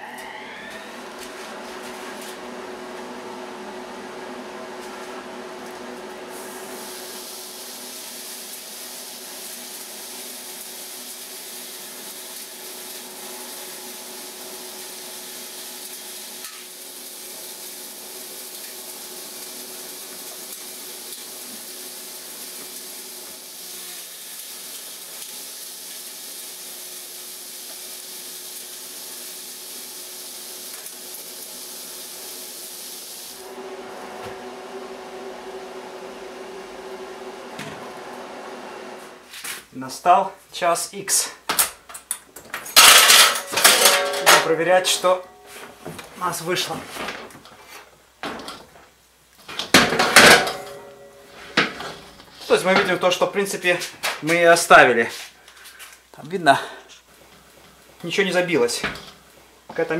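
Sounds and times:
dust collector motor hum: 0.0s - 39.5s
wood chips rushing through hose: 6.3s - 35.0s, 51.3s - 59.9s.

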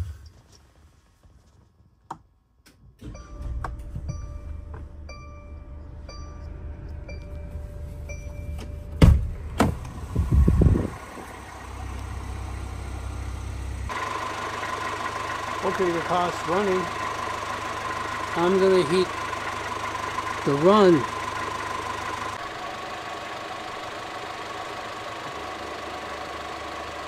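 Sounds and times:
van engine starting and idling: 2.8s - 27.0s
loud thunks: 9.0s - 9.9s.

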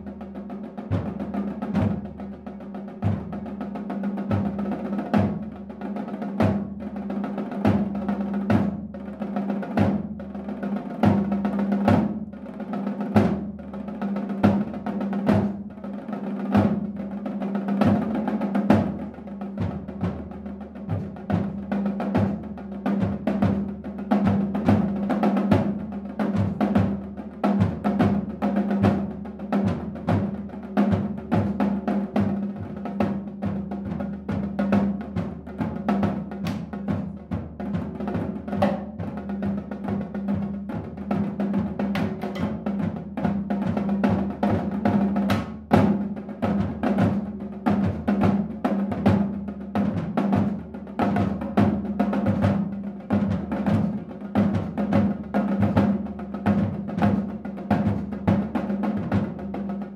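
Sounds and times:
snare drum rolls: 19.6s - 59.4s.

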